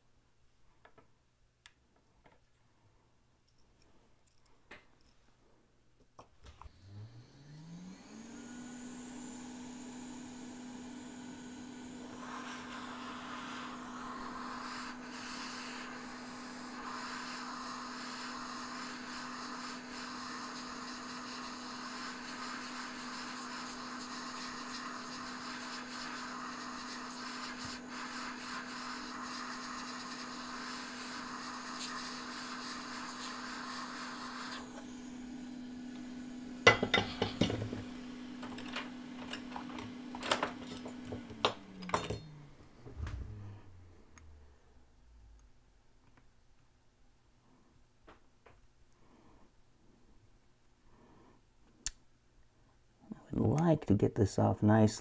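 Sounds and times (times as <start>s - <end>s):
heat gun blowing air: 6.6s - 42.0s
heat gun motor hum: 6.6s - 44.4s.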